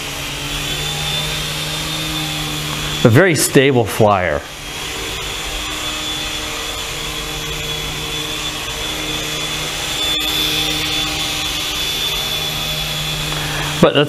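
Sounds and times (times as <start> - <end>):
high electric motor whine: 0.0 - 14.0
toy helicopter rotors whirring: 0.0 - 14.0.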